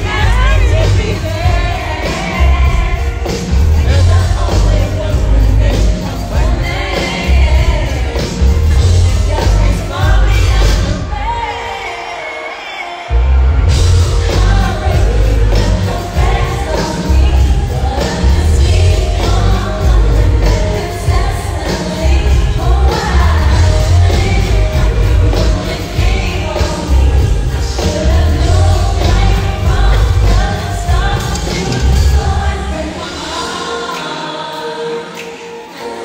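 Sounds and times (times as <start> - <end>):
singer with backing band: 0.0 - 36.0
heavy bass beat: 13.6 - 21.4.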